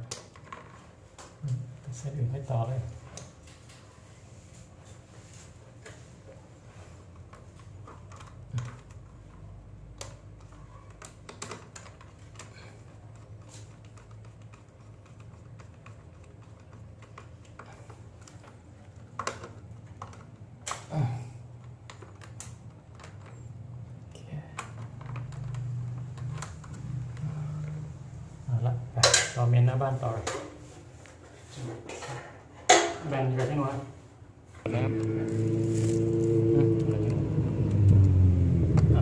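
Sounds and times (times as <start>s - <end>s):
low hum: 34.7s - 39.0s.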